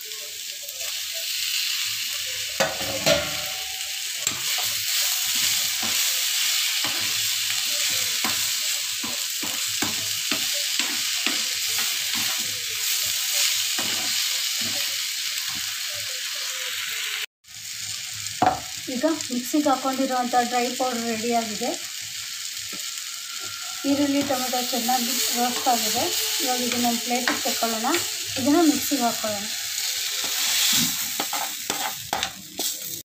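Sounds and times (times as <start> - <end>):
vegetables sizzling in oil: 0.0 - 33.0
metal ladle scraping pan: 2.6 - 6.0, 22.8 - 32.8.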